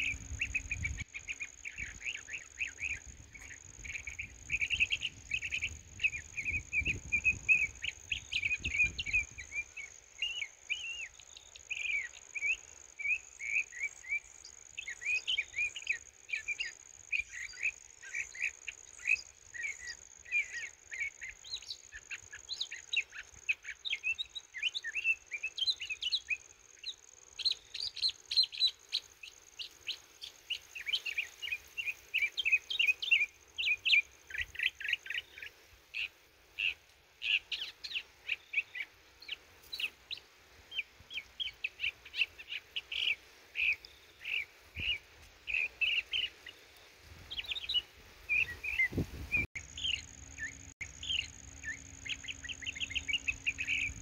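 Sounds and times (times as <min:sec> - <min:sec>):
bird chirps and twitters: 0:00.0 - 0:29.1, 0:47.3 - 0:54.0
insect trill: 0:48.7 - 0:54.0.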